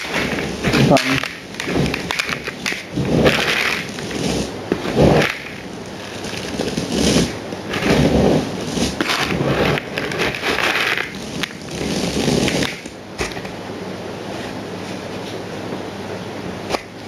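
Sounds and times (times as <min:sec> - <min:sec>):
materials rustling and crackling: 0:00.0 - 0:13.6.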